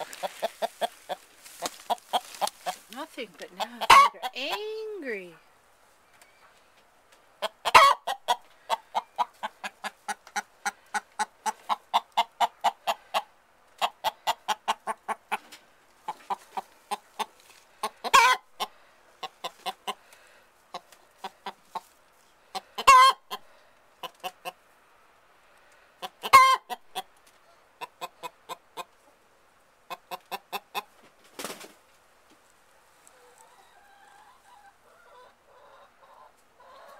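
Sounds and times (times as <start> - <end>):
hen clucking rapidly: 0.0 - 5.0, 7.4 - 20.1, 20.7 - 21.9, 22.5 - 24.6, 26.0 - 27.1, 27.8 - 29.0, 29.9 - 30.9.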